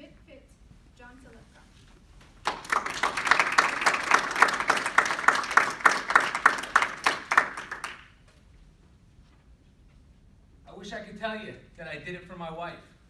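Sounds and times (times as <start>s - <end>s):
audience applauding: 2.4s - 8.2s
sharp close hand claps: 2.4s - 8.2s.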